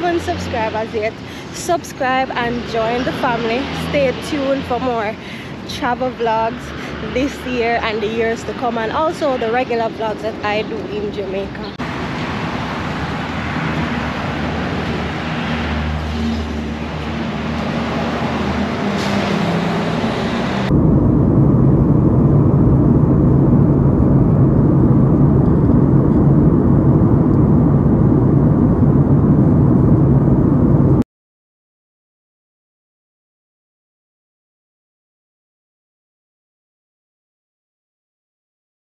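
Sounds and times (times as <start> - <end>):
road noise: 0.0 - 21.6
deep engine rumble: 0.0 - 31.0
vehicle engine hum: 0.0 - 31.0.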